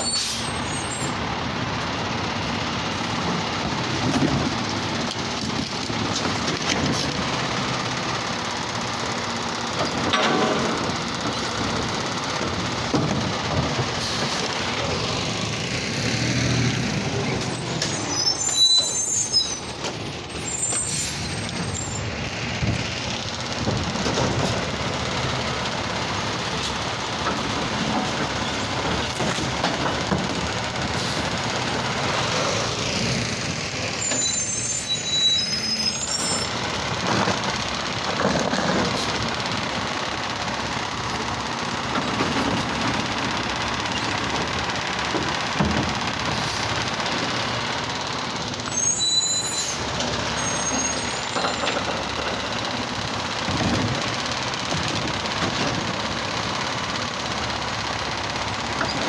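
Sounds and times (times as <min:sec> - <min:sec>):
garbage truck diesel engine: 0:00.0 - 0:59.0
high thin squeals: 0:17.4 - 0:22.1, 0:33.8 - 0:36.6, 0:48.6 - 0:51.7.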